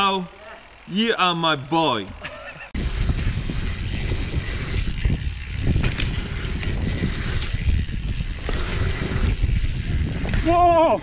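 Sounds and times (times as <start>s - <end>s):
bike tyres rumbling over dirt: 2.2s - 11.0s
wind rushing over microphone: 2.8s - 11.0s.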